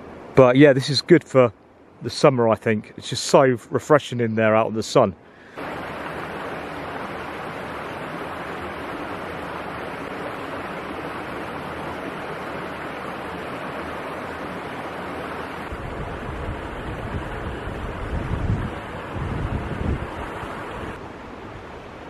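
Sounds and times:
mountain stream rushing: 0.0s - 22.0s
wind buffeting microphone: 15.7s - 21.8s.

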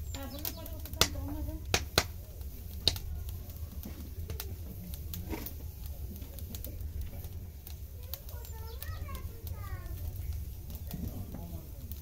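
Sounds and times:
wood fire crackling: 0.0s - 12.0s
sharp pop of fire: 0.2s - 7.3s.

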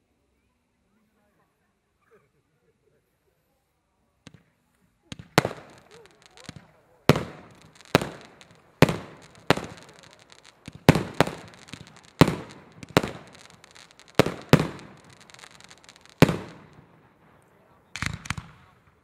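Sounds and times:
fireworks bursting with echo: 4.3s - 19.0s.

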